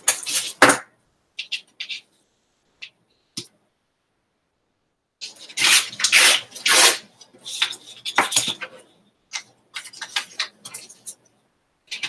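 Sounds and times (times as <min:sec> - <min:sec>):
paper rustling and crinkling: 0:05.2 - 0:11.2.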